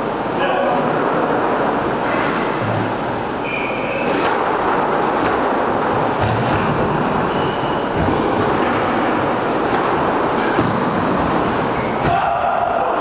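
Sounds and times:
shoes squeaking on floor: 0:03.4 - 0:04.2, 0:07.2 - 0:08.0, 0:11.3 - 0:12.0
squash ball and racket knocks: 0:04.0 - 0:07.2, 0:07.9 - 0:12.6.

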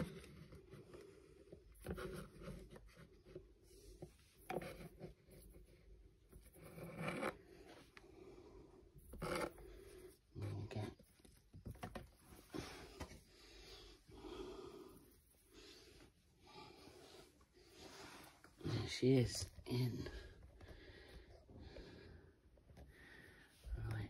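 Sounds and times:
faint scraping and rustling: 0:00.0 - 0:21.3.

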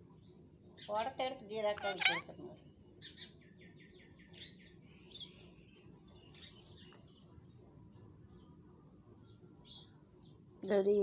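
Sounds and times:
parakeet chirping: 0:00.8 - 0:03.4.

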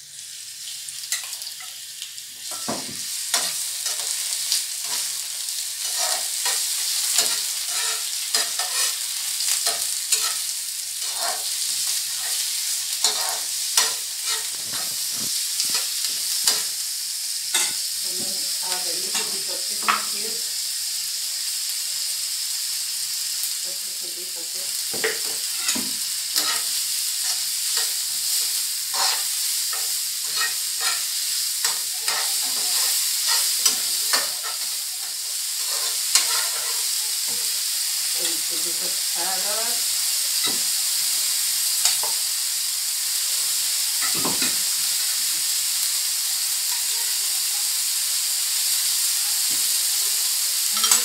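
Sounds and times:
shrimp sizzling in hot oil: 0:00.0 - 0:51.0
spatula scraping and knocking pan: 0:05.8 - 0:09.0, 0:09.6 - 0:10.4, 0:11.0 - 0:16.7, 0:17.5 - 0:18.4, 0:24.9 - 0:37.5.

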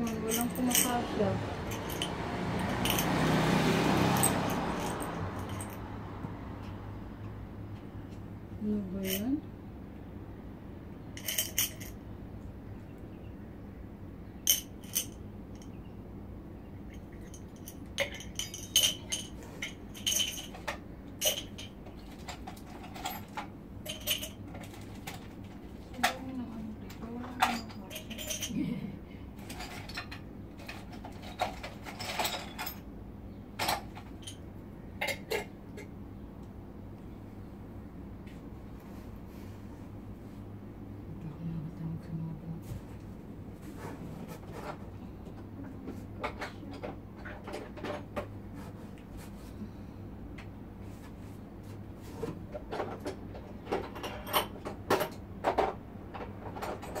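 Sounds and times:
household items clinking and knocking: 0:00.0 - 0:05.8, 0:17.0 - 0:28.7.

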